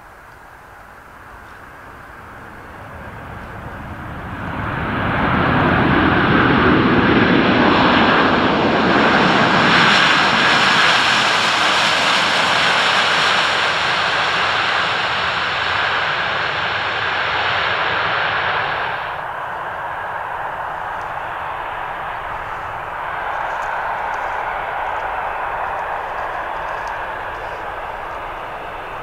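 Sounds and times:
jet engines roaring: 0.0 - 29.0
whining engine tone: 18.6 - 29.0.

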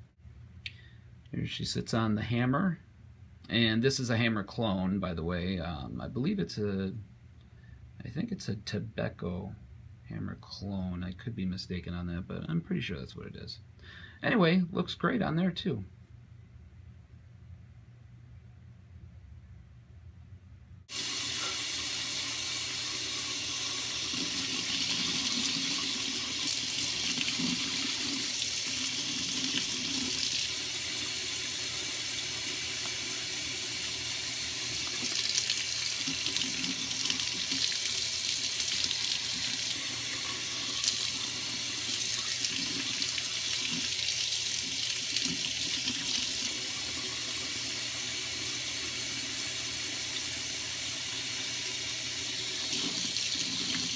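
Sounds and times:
faucet running into sink: 20.9 - 53.9.

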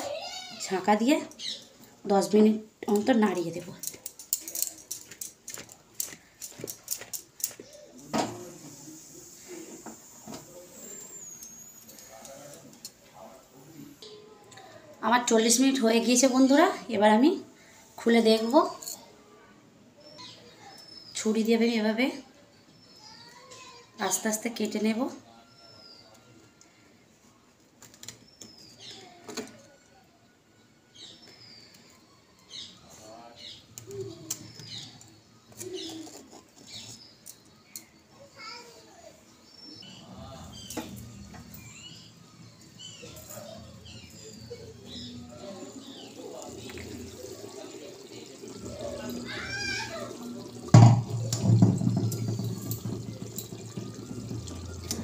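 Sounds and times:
birds chirping: 0.1 - 8.1, 10.5 - 14.4, 30.9 - 55.0
clay pot knocking on burner grate: 50.7 - 55.0.

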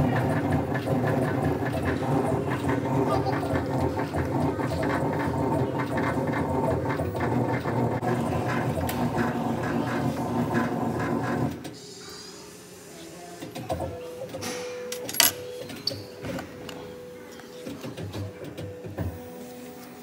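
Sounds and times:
engraving machine rattling: 0.0 - 11.6.

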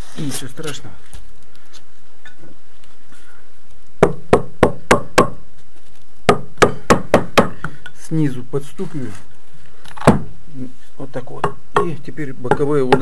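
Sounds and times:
concrete block knocks: 10.0 - 10.3.

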